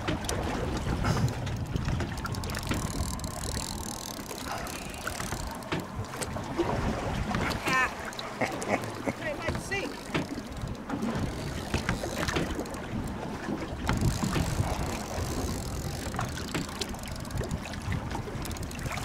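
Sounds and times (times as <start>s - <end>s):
choppy water slapping: 0.0s - 19.0s
wind buffeting microphone: 0.0s - 19.0s.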